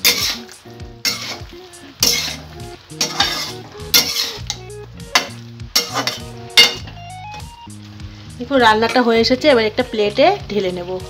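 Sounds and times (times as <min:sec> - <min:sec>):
metal spatula scraping a pan: 0:00.0 - 0:07.0.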